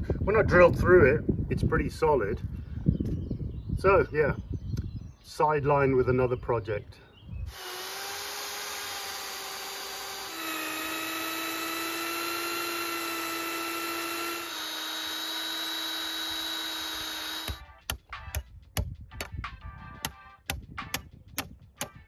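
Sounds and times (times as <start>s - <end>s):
electric drill boring into log: 7.5s - 17.6s.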